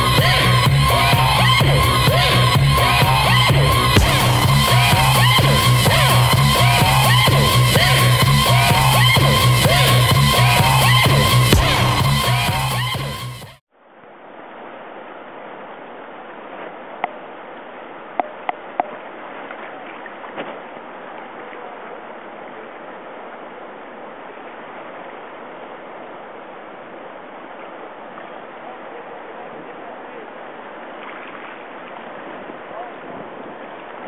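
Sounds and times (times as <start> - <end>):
whitewater river rapids rushing: 0.0 - 12.9, 14.3 - 34.0
music: 0.0 - 13.6
short sharp sounds: 4.0 - 13.5.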